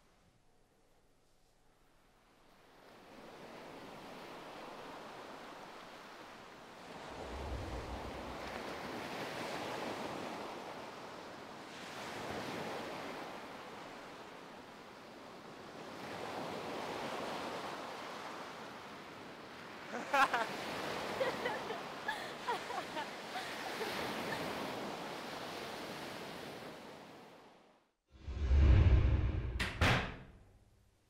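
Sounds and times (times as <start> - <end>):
ocean surf breaking on beach: 2.8 - 27.4.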